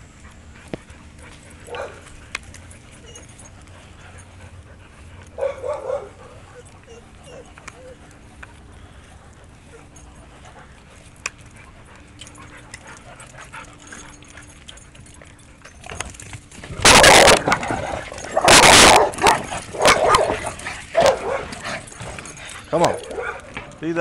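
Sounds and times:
dog barking: 1.7 - 2.1, 5.4 - 6.4, 16.8 - 17.5, 18.4 - 21.6, 22.7 - 23.7.

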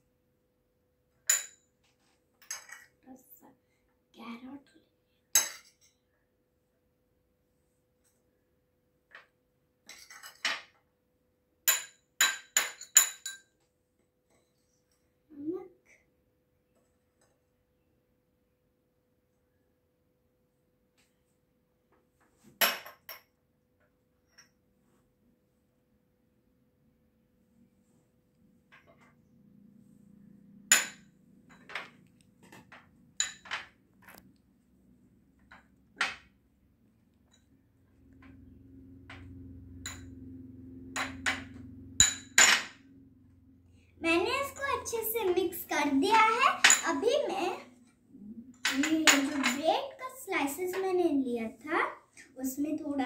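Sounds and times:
metal spoon clinking on ceramic bowl: 1.3 - 1.7, 5.4 - 5.9, 11.7 - 13.5.

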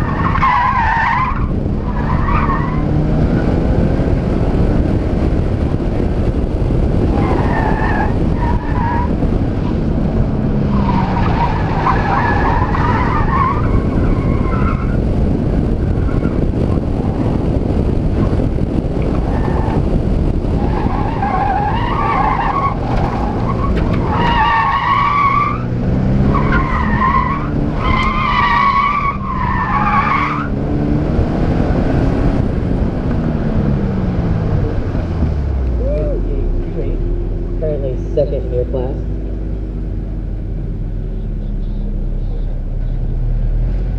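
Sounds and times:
tires squealing: 0.0 - 3.6, 6.9 - 9.8, 10.4 - 32.0
car engine revving: 0.0 - 43.9
heavy wind noise: 0.0 - 43.9
road rumble: 0.0 - 43.9.

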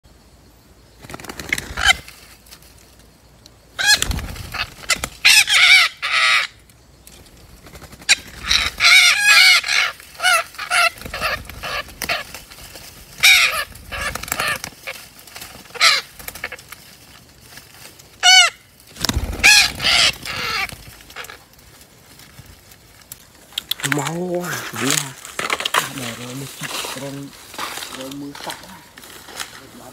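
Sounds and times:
parrots squawking: 3.8 - 6.5, 8.1 - 12.3, 13.2 - 15.0, 15.7 - 16.6, 18.2 - 18.6, 19.4 - 21.4.

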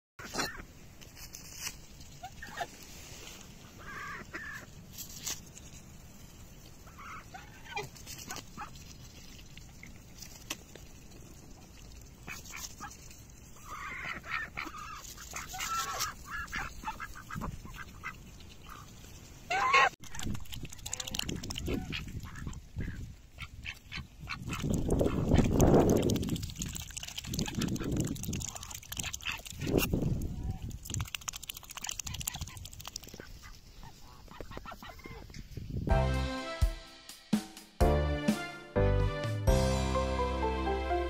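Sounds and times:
ducks quacking: 3.7 - 4.7, 13.6 - 18.9, 19.5 - 20.0, 20.8 - 25.6, 33.2 - 35.3
goose honking: 19.5 - 20.0.

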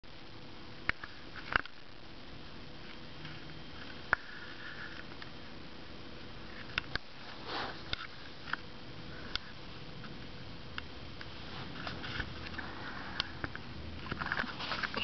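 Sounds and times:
low steady hiss: 0.0 - 15.0
person sniffing: 7.4 - 7.9.

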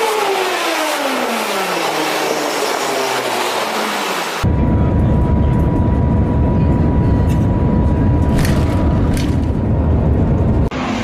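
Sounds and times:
train cabin low rumble: 4.4 - 11.0.

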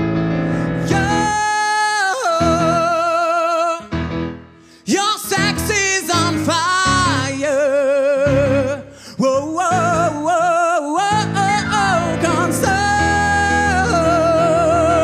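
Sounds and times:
man singing with vibrato: 0.7 - 4.1, 4.7 - 15.0
unplugged instrumental accompaniment: 11.1 - 15.0.

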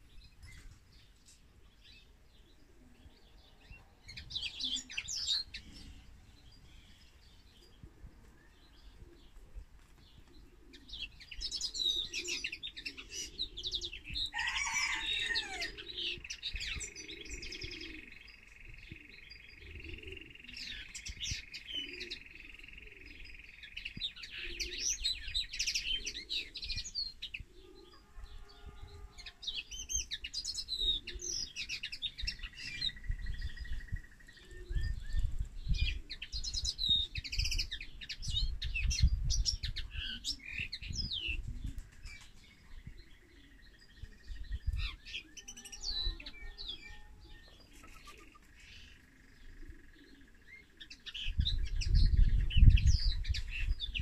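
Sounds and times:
finch twittering song: 16.2 - 41.5.

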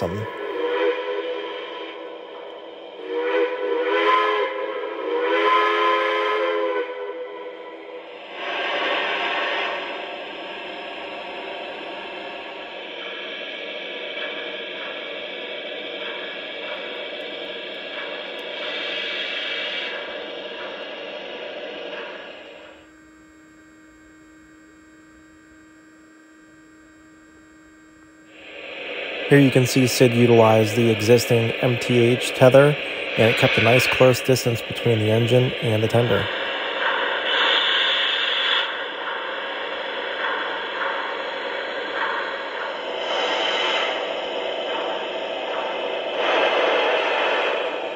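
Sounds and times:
faint electrical hum: 0.0 - 0.7, 22.5 - 36.5
model steam locomotive running: 0.0 - 26.0, 28.2 - 47.9.

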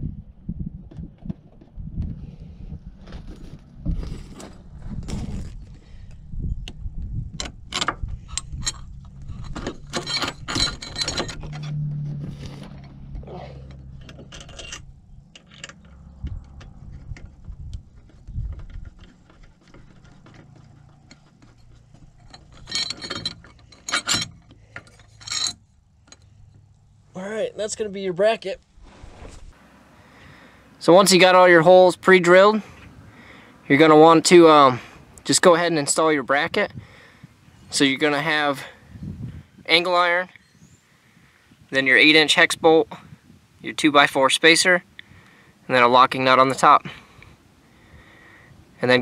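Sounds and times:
metal hardware clinking and knocking: 7.3 - 11.8, 12.6 - 26.6
sharp metallic clatter: 7.3 - 26.4.

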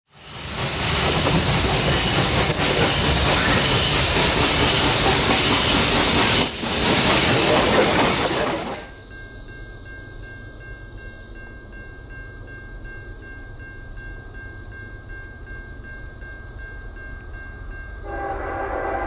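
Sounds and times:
steam locomotive exhaust and hiss: 0.1 - 19.0
wheels on rails: 0.2 - 9.0.

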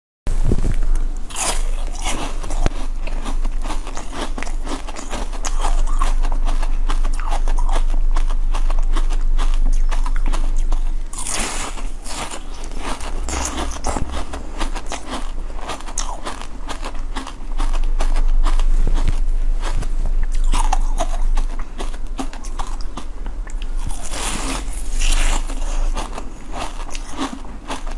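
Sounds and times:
chewing and crunching ice: 0.8 - 27.9.

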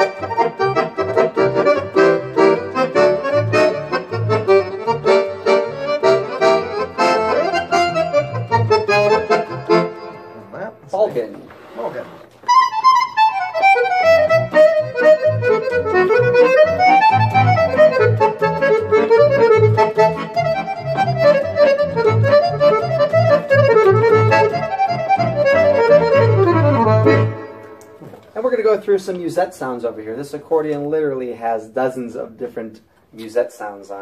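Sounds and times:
accordion playing a tune: 0.0 - 10.6, 11.6 - 28.0.

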